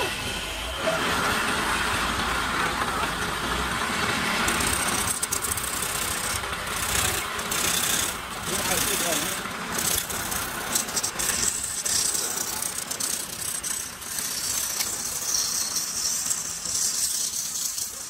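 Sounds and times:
lathe tool scraping wood: 0.0 - 18.0.

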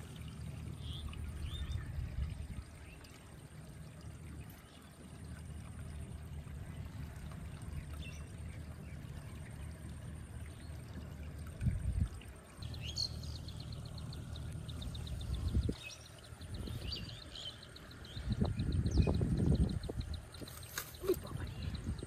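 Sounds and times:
grass rustling: 20.4 - 21.3.

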